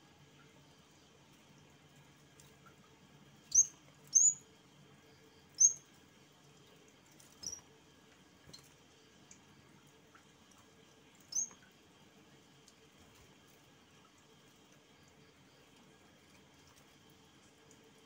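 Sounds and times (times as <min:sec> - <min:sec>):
bird chirping sharply: 0:03.5 - 0:04.4, 0:05.6 - 0:05.8.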